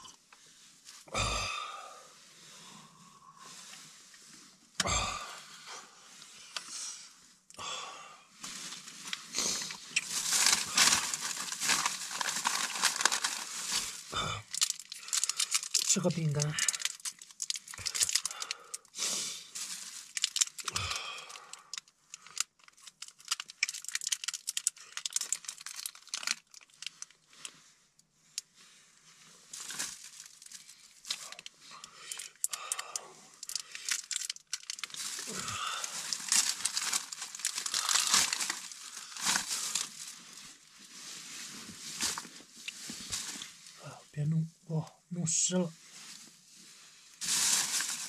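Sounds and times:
plastic wrapper crinkling: 8.4 - 19.0, 19.6 - 27.6, 29.5 - 43.8, 47.2 - 48.0.

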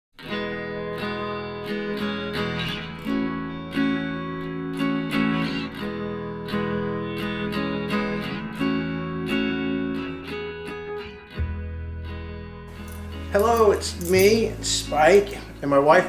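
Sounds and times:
acoustic guitar strumming chords: 12.7 - 16.0.

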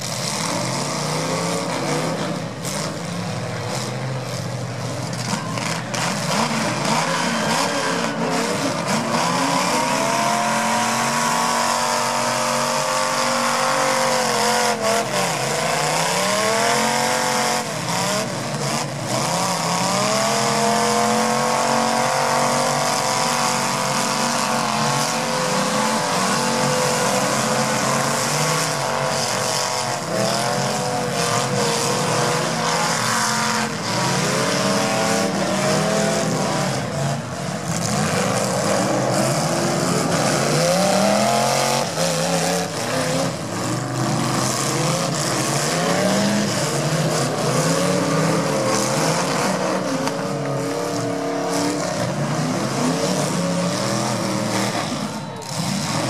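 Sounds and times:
car engines revving: 0.0 - 56.0.

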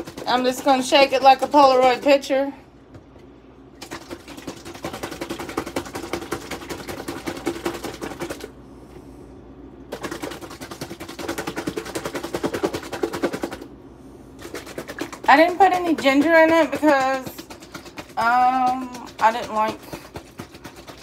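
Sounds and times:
plastic container rattling: 14.4 - 21.0.

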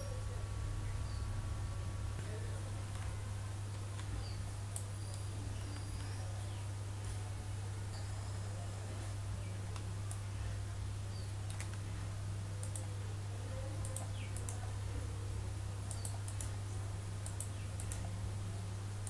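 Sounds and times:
low electrical hum: 0.0 - 19.0
mouse buttons clicking: 12.6 - 12.9, 13.8 - 14.6, 15.9 - 16.5, 17.2 - 18.1.

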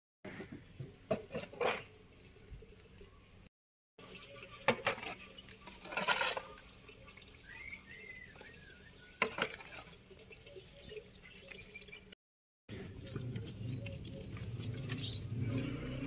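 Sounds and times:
wet scrape of shovel load: 5.7 - 6.6.

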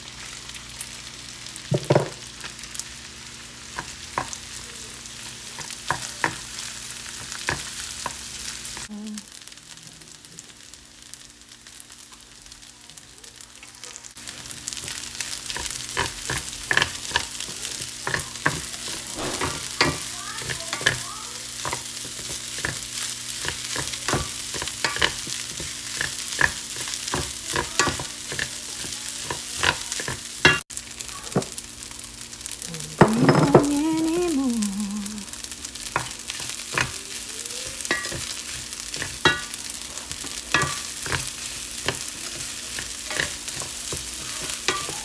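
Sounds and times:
rice sizzling in a pan: 0.0 - 45.0
wooden spatula scraping a pan: 18.5 - 20.9.

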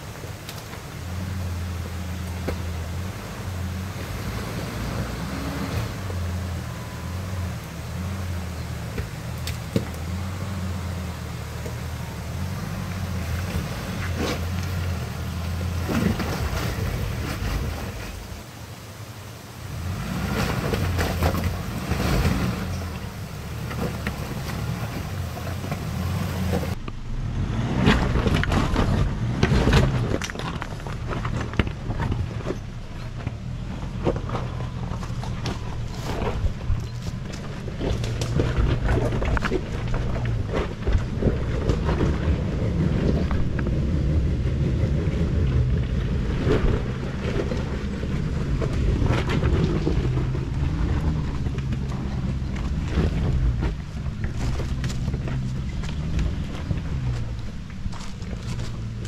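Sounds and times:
tyres crunching on stones: 0.0 - 18.5, 27.7 - 59.0
car engine running at low revs: 0.0 - 59.0
knocks and clatters: 27.8 - 59.0.

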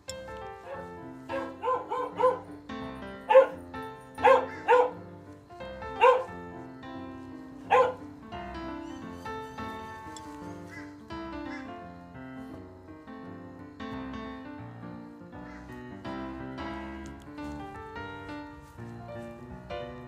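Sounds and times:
background music: 0.0 - 20.0
small dog yapping: 0.7 - 2.4, 4.2 - 5.0, 6.0 - 6.3, 7.7 - 8.0.

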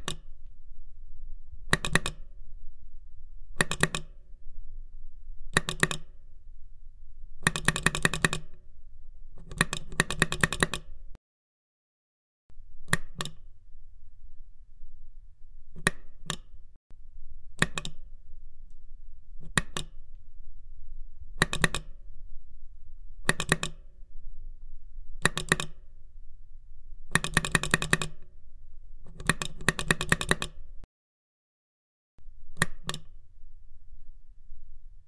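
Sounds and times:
device buttons clicking: 1.7 - 2.2, 3.6 - 4.2, 5.5 - 6.1, 12.8 - 13.4, 15.7 - 16.5, 17.6 - 18.0, 19.4 - 20.0, 21.4 - 21.9, 23.2 - 23.8, 25.2 - 25.8, 32.6 - 33.1.

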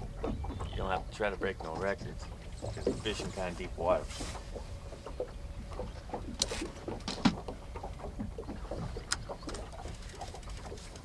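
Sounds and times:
wind and water rumble: 0.0 - 11.0
fishing rod and reel clicking: 5.7 - 8.1, 8.8 - 11.0.

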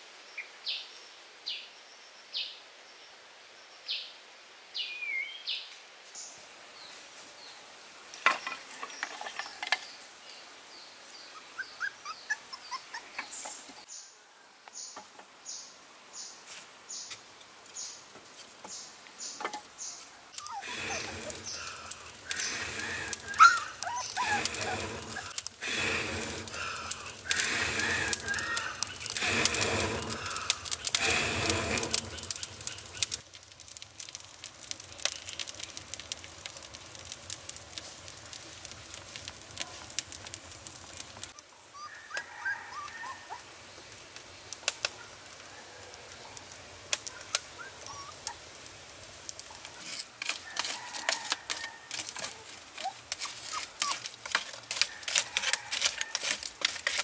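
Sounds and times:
wood fire crackling and popping: 19.4 - 41.4, 43.7 - 57.0
animal calls: 20.4 - 33.2, 41.6 - 43.5.

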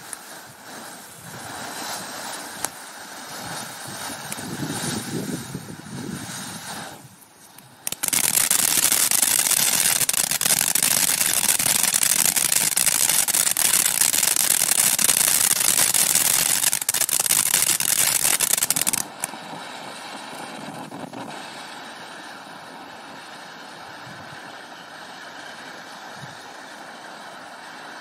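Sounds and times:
crackling firework pops: 0.0 - 28.0
firework fountain hiss: 0.0 - 28.0.

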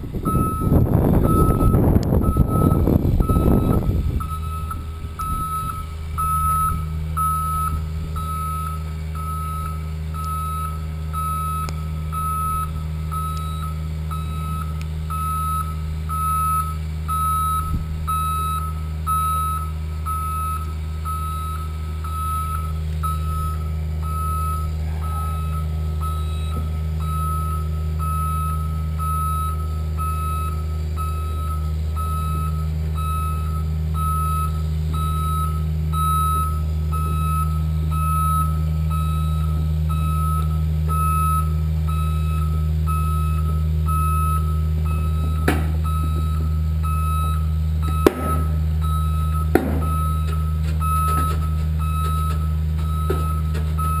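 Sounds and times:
reversing alarm beeping: 0.0 - 54.0
truck engine humming: 0.0 - 54.0.

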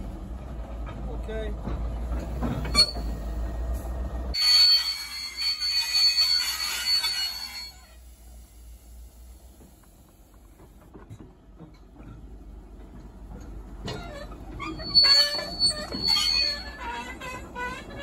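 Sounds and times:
train low rumble: 0.0 - 18.0
train brakes squealing and grinding: 2.2 - 8.1, 13.8 - 18.0.

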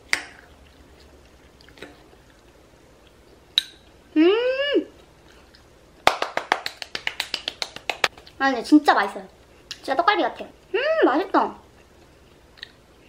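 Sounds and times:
chewing mouth sounds: 0.1 - 3.4
person humming: 4.1 - 5.0.

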